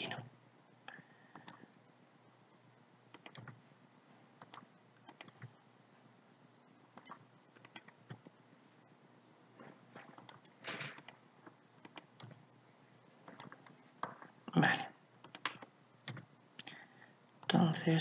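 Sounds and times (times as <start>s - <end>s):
mouse and keyboard clicks: 3.1s - 3.6s, 4.4s - 5.5s, 7.0s - 8.3s, 10.1s - 12.4s, 13.2s - 14.2s, 15.2s - 16.3s.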